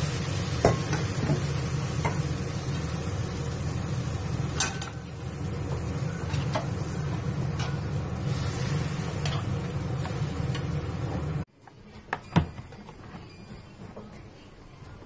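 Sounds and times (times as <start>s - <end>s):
beef braising in sauce: 0.0s - 11.5s
low kitchen rumble: 0.0s - 15.0s.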